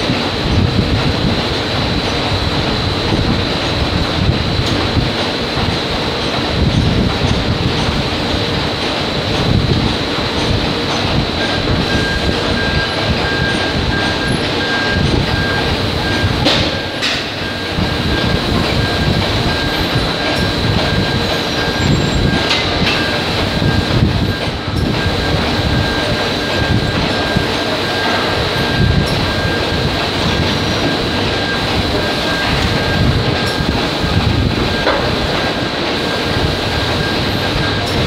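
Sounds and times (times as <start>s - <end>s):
factory machinery din: 0.0s - 38.0s
high machine whine: 0.0s - 38.0s.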